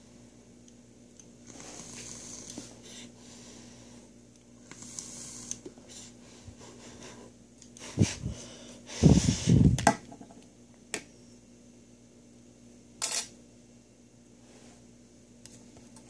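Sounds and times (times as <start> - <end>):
person breathing heavily: 1.5 - 4.1, 5.8 - 9.8.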